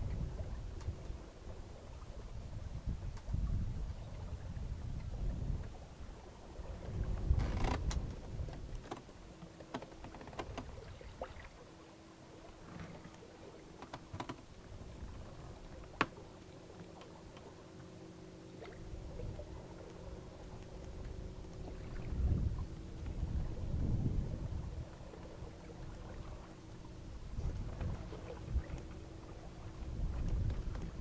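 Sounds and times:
wind rumbling on microphone: 0.0 - 11.6, 12.4 - 16.2, 18.6 - 31.0
faint steady hum: 0.0 - 31.0
light clicks and taps: 13.8 - 14.5.

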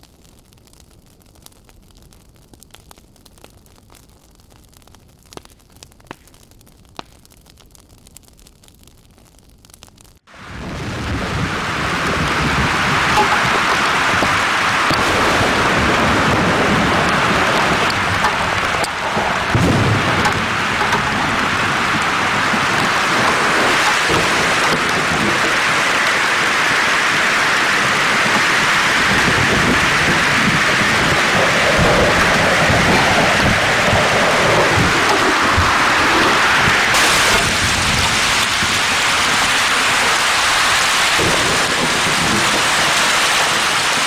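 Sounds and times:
rain and hail pelting ground: 0.0 - 44.0
thunder rumbling: 10.3 - 44.0.

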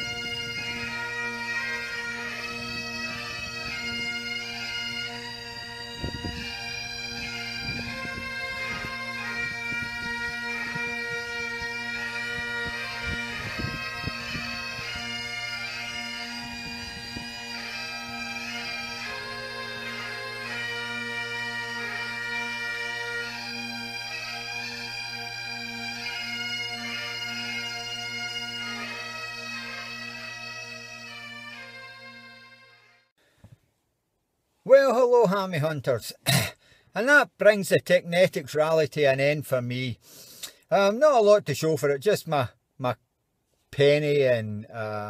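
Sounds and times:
bagpipe tune over drone: 0.0 - 33.1.

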